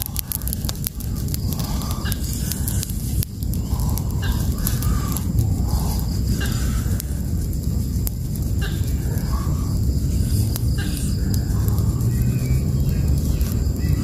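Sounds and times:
fire burning with low rumble: 0.0 - 14.0
fire crackling: 0.0 - 14.0.

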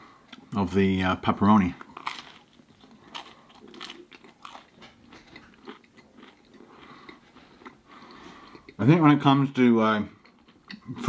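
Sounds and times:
crunchy chewing: 1.6 - 8.8.

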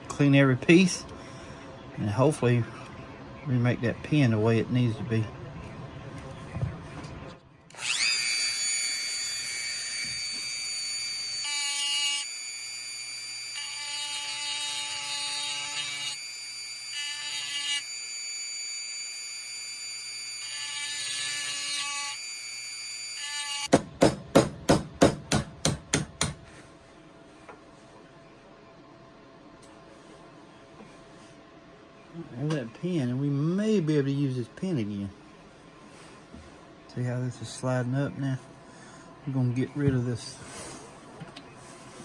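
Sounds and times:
rotary tool grinding metal: 7.7 - 23.7.

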